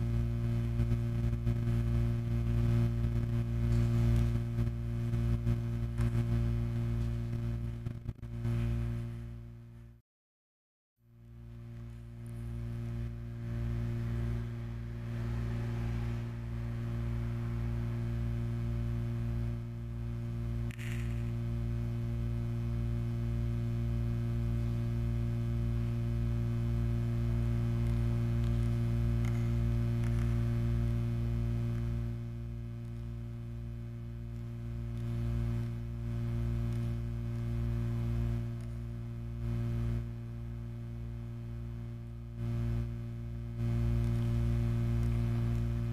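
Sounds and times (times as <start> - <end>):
low electric hum drone: 0.0 - 10.0, 11.0 - 45.9
brief crackle: 20.6 - 21.5.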